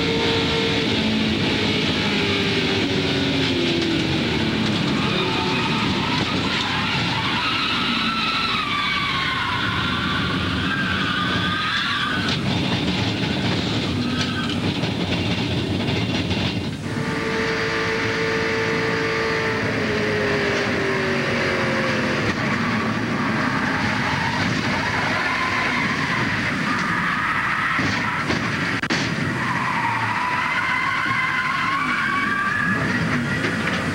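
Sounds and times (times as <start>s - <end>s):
wind and road noise: 0.0s - 33.9s
wavering high whine: 16.8s - 23.6s.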